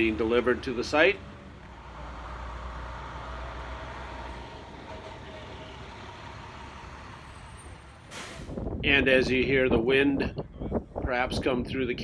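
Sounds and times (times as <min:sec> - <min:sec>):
truck engines idling: 0:00.0 - 0:08.8.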